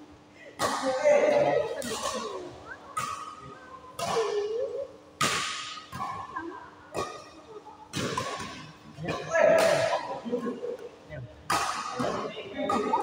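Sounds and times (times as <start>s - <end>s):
rackets striking shuttlecock: 5.2s - 10.7s, 11.5s - 13.0s.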